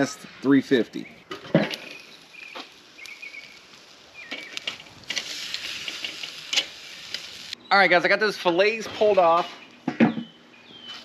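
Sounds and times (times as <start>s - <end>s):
bird chirps: 0.0s - 4.8s, 9.5s - 11.0s
steaks sizzling on grill: 1.6s - 7.6s.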